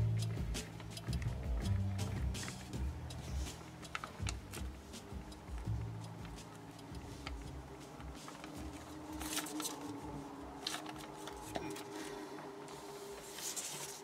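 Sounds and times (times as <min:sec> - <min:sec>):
paper rustling and crinkling: 0:02.4 - 0:14.0.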